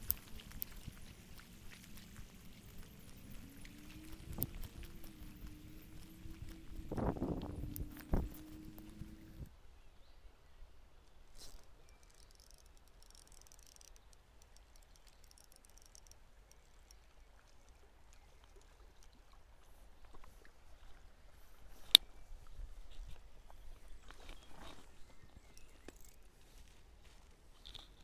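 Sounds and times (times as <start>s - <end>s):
fishing reel ticking: 11.5s - 17.8s, 25.6s - 26.3s.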